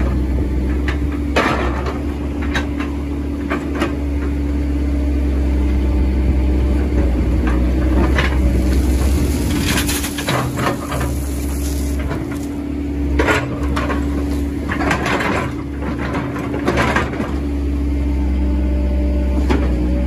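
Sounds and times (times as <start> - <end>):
excavator bucket clattering: 0.0 - 4.4, 6.9 - 17.5
excavator diesel engine running: 0.0 - 20.0.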